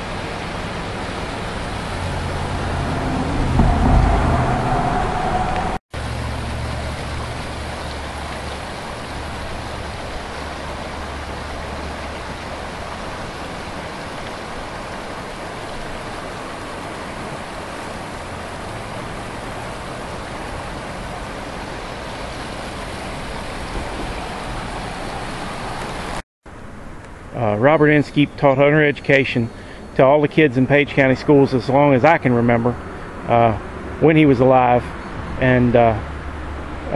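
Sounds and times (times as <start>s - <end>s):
river water rushing: 0.0s - 26.7s
low rumble: 1.2s - 7.3s.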